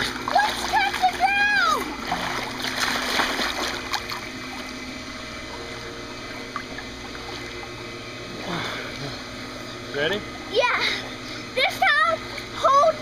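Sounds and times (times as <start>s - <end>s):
child splashing into pool: 0.0s - 4.2s
water sloshing and lapping: 0.0s - 9.6s.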